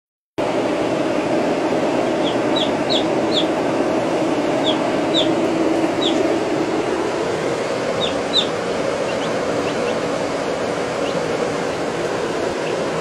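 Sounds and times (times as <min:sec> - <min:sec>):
loud noisy hum: 0:00.4 - 0:13.0
baby chicks peeping: 0:01.7 - 0:07.0, 0:07.6 - 0:13.0.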